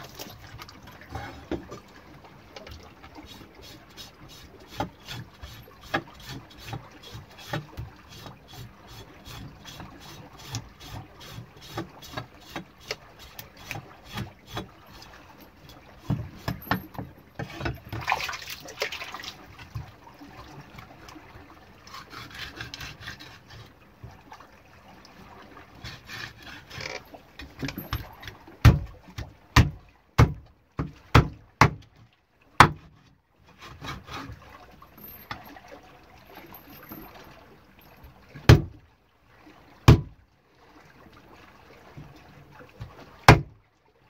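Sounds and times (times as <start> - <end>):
knife scraping wet fish: 21.9 - 23.7, 25.8 - 27.1.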